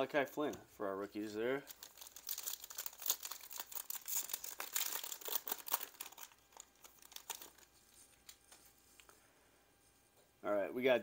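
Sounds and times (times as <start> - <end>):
foil wrapper tearing and crinkling: 1.7 - 7.7.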